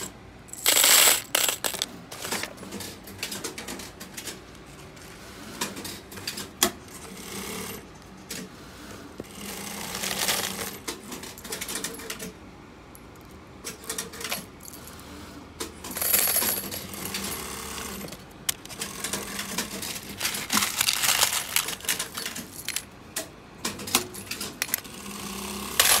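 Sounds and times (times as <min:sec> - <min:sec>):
metal washers clinking in plastic bin: 0:00.0 - 0:02.8, 0:09.9 - 0:12.2, 0:15.8 - 0:23.0, 0:23.9 - 0:24.8, 0:25.8 - 0:26.0.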